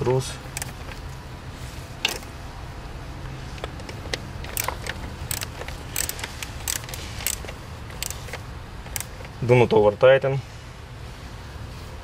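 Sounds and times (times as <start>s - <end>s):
ratchet wrench clicking: 0.5s - 1.0s, 3.6s - 9.4s.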